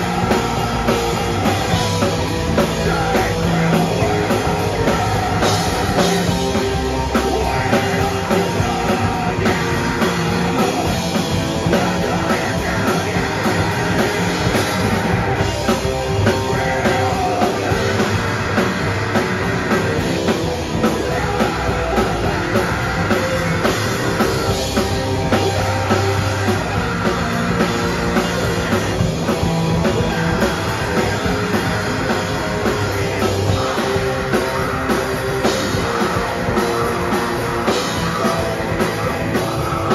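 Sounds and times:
person singing into microphone: 0.0 - 20.1
bass guitar: 0.0 - 39.9
drum kit: 0.0 - 39.9
electric guitars: 0.0 - 39.9.

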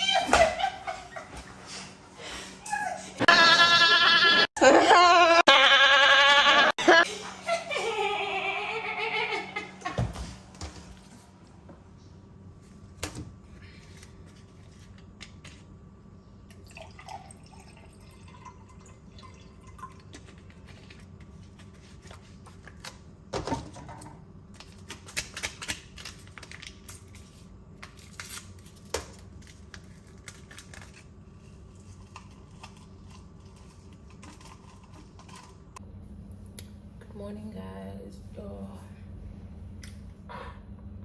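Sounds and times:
liquid pouring into glass: 16.5 - 20.1
steady low hum: 27.0 - 41.0.

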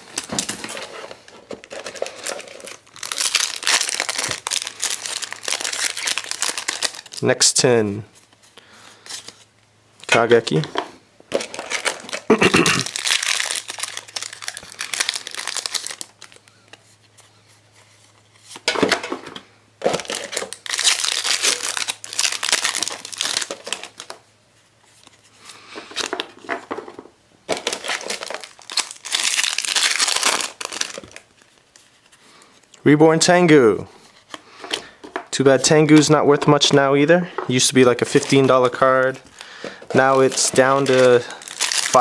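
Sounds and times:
foil wrappers tearing and crinkling: 0.0 - 7.2, 11.3 - 16.5, 19.8 - 24.2, 27.5 - 32.0, 37.9 - 42.0.

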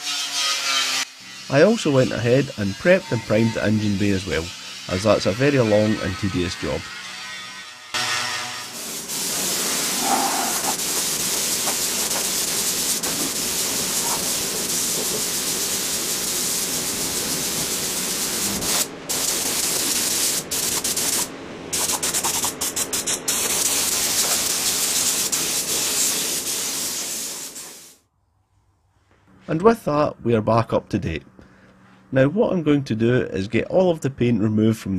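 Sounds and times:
spray gun hissing: 8.8 - 28.0.

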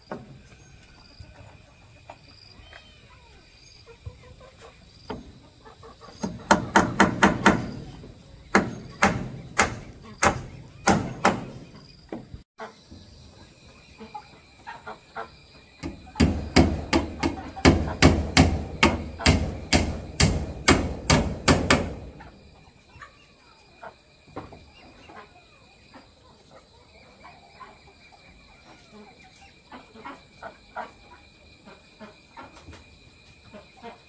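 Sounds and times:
hammer striking nail into wood: 6.2 - 7.7, 8.5 - 11.5, 16.2 - 22.0.

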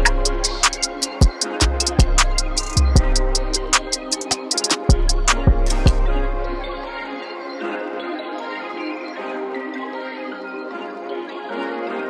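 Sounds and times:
hi-hat ticks: 0.0 - 6.0
deep kick drums: 1.8 - 3.4, 4.9 - 6.1.

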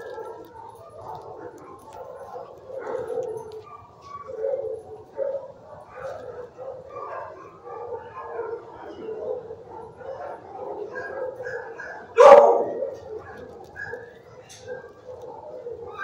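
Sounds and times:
dogs barking and whining: 0.0 - 16.0
loud sharp dog bark: 11.1 - 13.0.

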